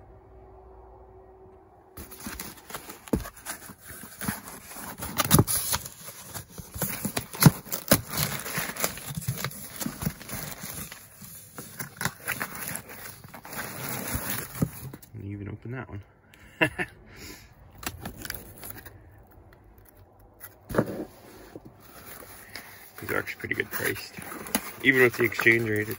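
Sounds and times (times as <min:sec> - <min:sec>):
cardboard box flaps scraping: 0:02.0 - 0:15.0, 0:20.5 - 0:25.9
bubble wrap crinkling: 0:02.0 - 0:15.1, 0:17.8 - 0:25.9.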